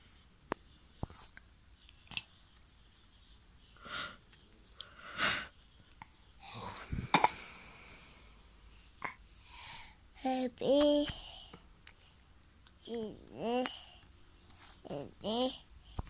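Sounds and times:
toddler congested breathing: 0:09.4 - 0:10.0.

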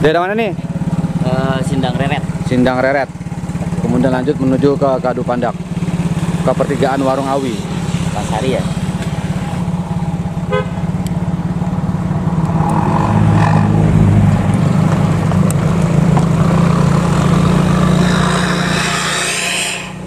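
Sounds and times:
road noise on rough road: 0:00.0 - 0:20.0
vehicle engine running: 0:00.0 - 0:20.0.

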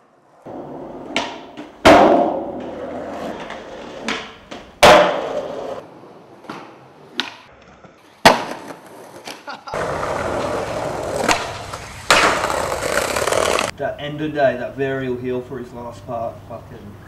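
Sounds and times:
skateboard wheels rolling on concrete: 0:00.0 - 0:13.8
skateboard clack: 0:00.4 - 0:05.8, 0:06.4 - 0:13.7
skateboard landing slap: 0:00.5 - 0:05.8, 0:06.4 - 0:07.5, 0:08.2 - 0:13.7.

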